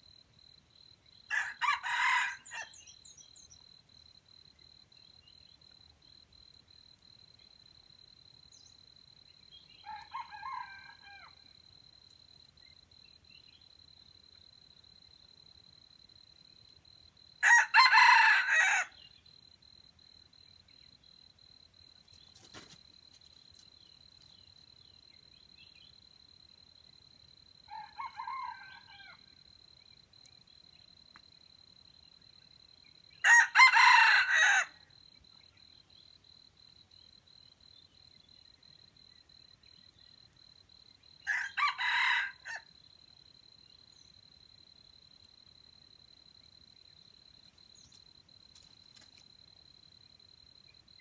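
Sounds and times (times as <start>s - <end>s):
rooster crowing: 1.3s - 2.8s, 9.8s - 11.5s, 17.4s - 19.0s, 27.7s - 29.3s, 33.2s - 34.8s, 41.2s - 42.7s.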